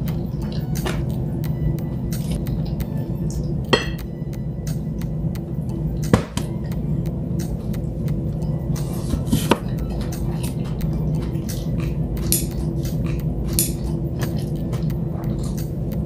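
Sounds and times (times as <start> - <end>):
steady low hum: 0.0 - 16.0
tableware clinking: 3.7 - 4.1.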